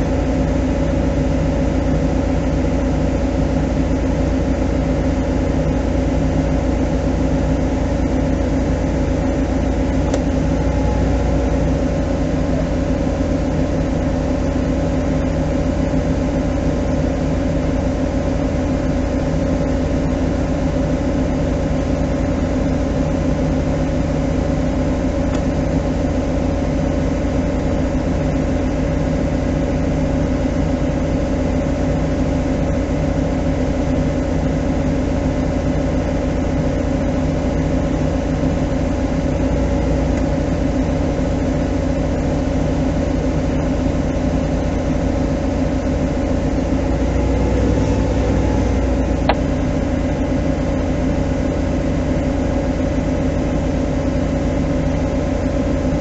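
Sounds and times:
engine droning steadily: 0.0 - 56.0.

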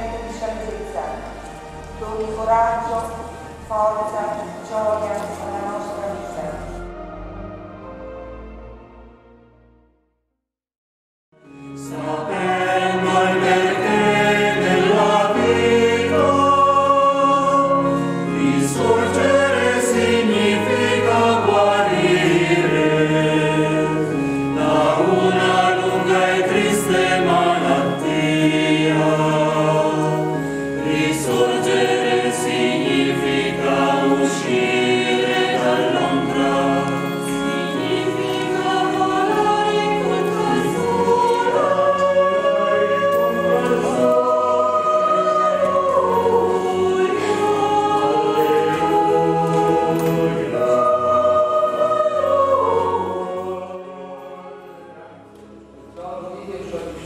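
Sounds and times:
choir singing a hymn: 0.0 - 9.2, 11.4 - 57.0
keyboard held notes: 11.4 - 57.0.

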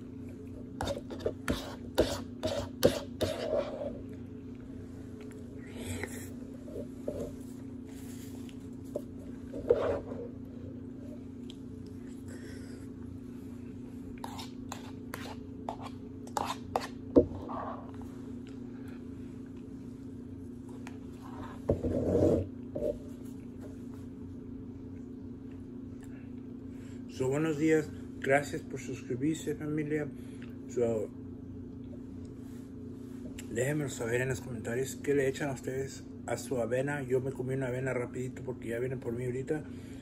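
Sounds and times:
steady low hum: 0.0 - 40.0
metal spoon scraping a bowl: 14.2 - 17.6.

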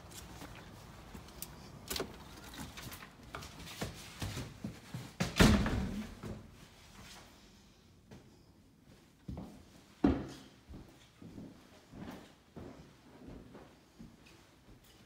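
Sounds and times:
footsteps: 0.0 - 5.4.

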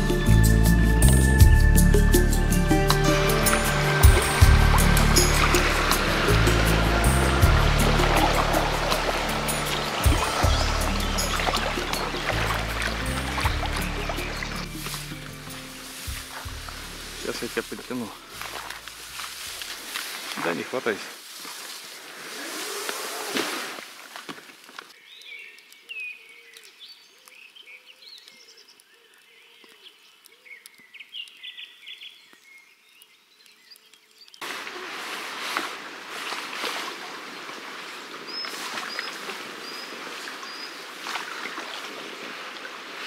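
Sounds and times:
campfire crackling: 0.1 - 31.5, 32.2 - 41.1
brush scraping against kayak: 3.2 - 24.4, 34.4 - 42.2
songbirds singing: 8.2 - 18.8, 24.9 - 34.5, 38.2 - 40.9.

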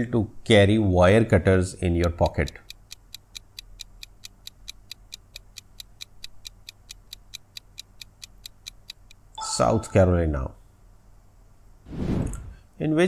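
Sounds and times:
clock ticking: 2.0 - 9.3.

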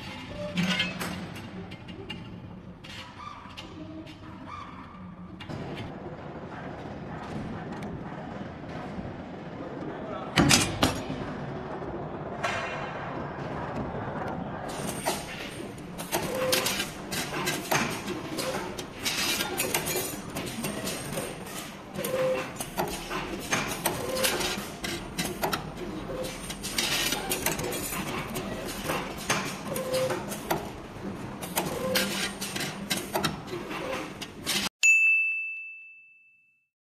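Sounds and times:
wire bending machine clattering: 14.7 - 34.7.

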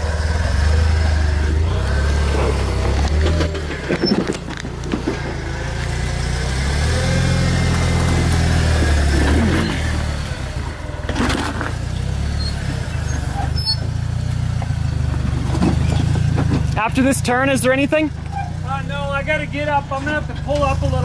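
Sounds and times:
engine running at low revs: 0.0 - 21.0.

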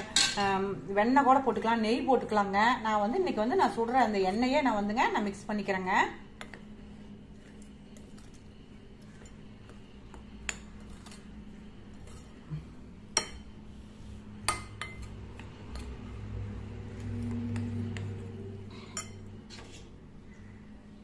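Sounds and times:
spoon stirring flour mixture: 5.6 - 20.0.

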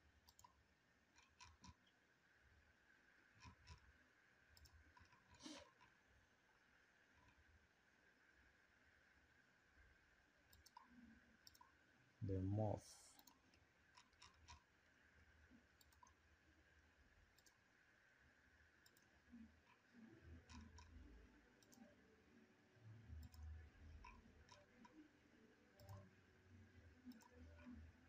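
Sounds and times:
computer mouse clicks: 0.2 - 2.0, 3.4 - 3.9, 4.5 - 6.0, 10.5 - 11.8, 13.1 - 14.7, 15.7 - 16.2, 17.3 - 17.6, 18.8 - 21.9, 23.2 - 25.0, 25.8 - 26.2, 27.0 - 28.0.

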